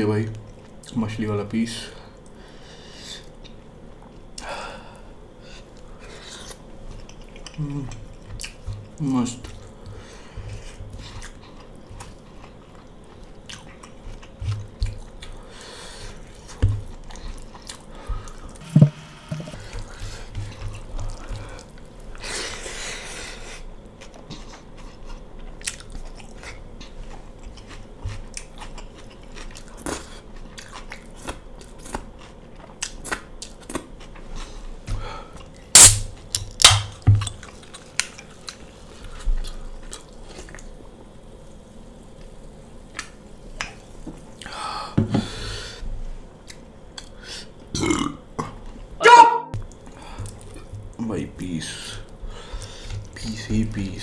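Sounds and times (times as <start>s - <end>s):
chewing and eating sounds: 5.5s - 18.6s, 19.4s - 41.2s, 49.6s - 53.8s.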